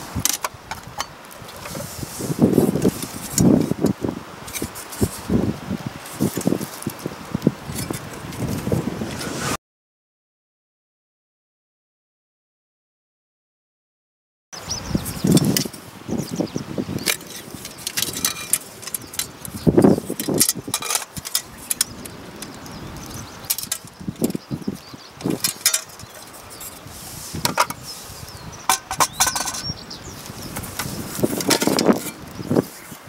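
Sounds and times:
metal stove parts clinking: 17.0s - 22.6s, 23.5s - 24.4s, 25.2s - 26.8s, 27.4s - 27.8s, 28.7s - 29.7s, 30.6s - 32.2s.

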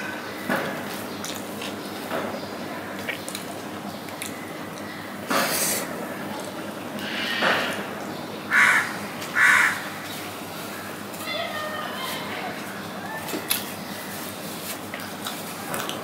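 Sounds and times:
crow cawing: 8.5s - 10.0s.

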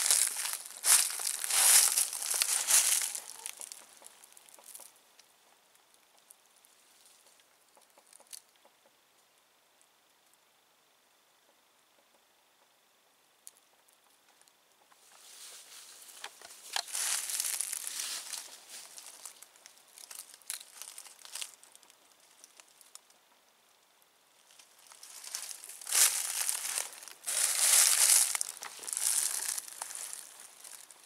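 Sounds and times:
dry leaves and twigs crunching: 0.0s - 4.9s, 15.0s - 23.0s, 24.4s - 31.0s.

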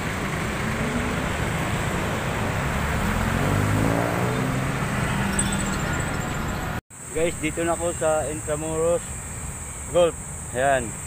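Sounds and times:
vehicle engine speeding up: 0.0s - 6.7s
road traffic passing: 0.0s - 11.0s.

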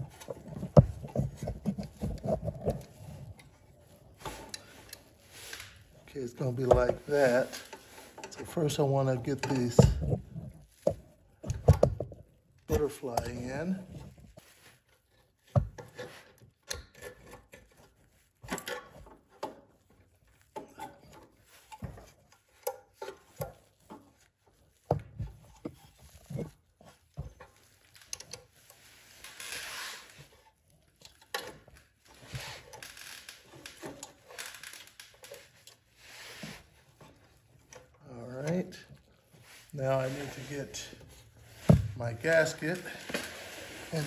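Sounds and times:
rustling and rubbing: 0.0s - 44.0s
light clicks and taps of metal parts: 4.3s - 14.4s.

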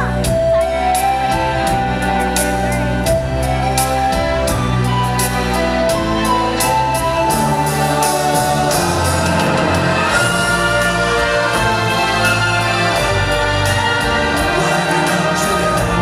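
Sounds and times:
orchestral show music with singing: 0.0s - 16.0s.

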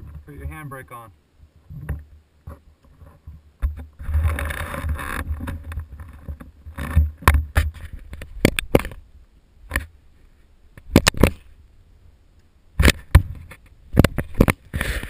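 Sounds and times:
camera rubbing rumble: 0.0s - 1.0s, 1.6s - 9.0s, 10.8s - 11.6s, 12.8s - 15.0s.

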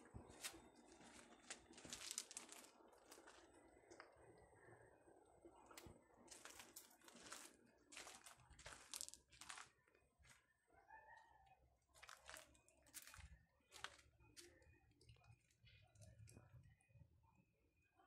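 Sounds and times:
footsteps crunching on gravel: 0.3s - 3.6s, 5.8s - 10.4s, 12.0s - 14.6s.

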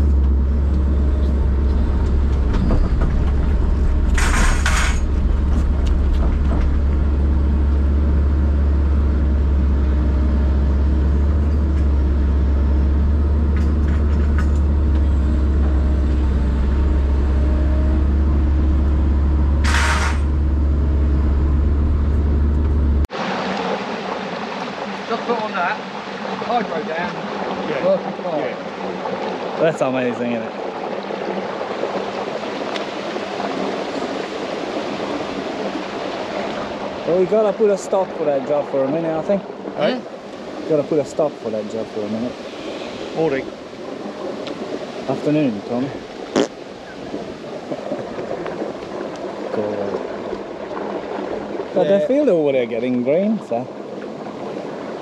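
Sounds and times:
running water: 0.0s - 21.4s, 22.0s - 55.0s
diesel engine drone: 0.0s - 23.7s
brief hissing: 19.6s - 20.3s.

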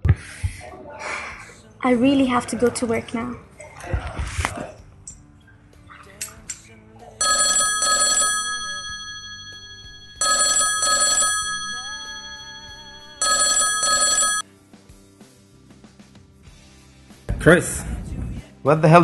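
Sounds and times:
phone ringing: 7.2s - 14.4s.

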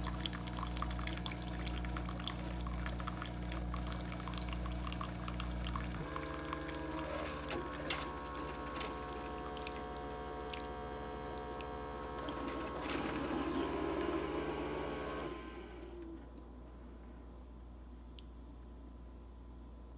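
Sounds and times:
small ticks and drips: 0.0s - 7.6s, 8.8s - 11.8s, 17.3s - 18.7s
coffee streaming into cup: 0.0s - 16.2s
coffee maker pump humming: 0.0s - 16.9s.

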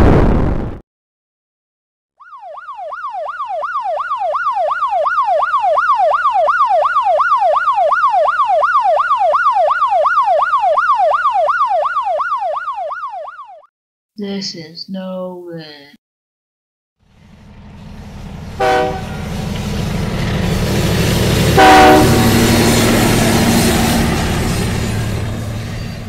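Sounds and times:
police siren yelping: 2.2s - 13.7s, 21.5s - 25.4s.

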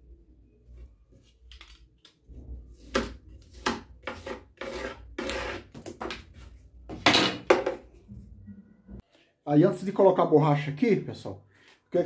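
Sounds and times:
utility knife cutting foam: 2.8s - 5.7s.

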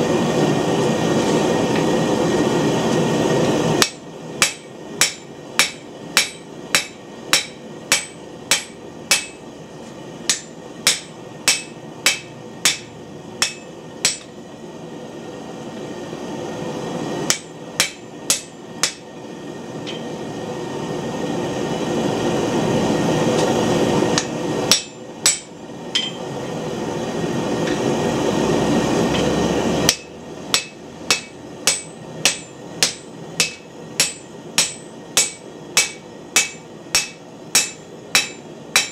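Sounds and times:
hammer striking hot steel on anvil: 3.8s - 9.5s, 10.2s - 14.4s, 17.2s - 19.2s, 19.8s - 20.2s, 24.2s - 26.3s, 29.2s - 38.9s.

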